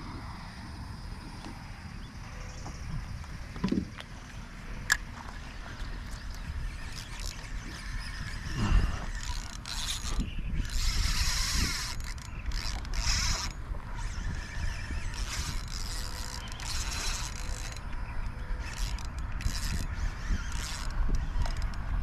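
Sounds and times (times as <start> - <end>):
spinning reel whirring and clicking: 4.4 - 22.0.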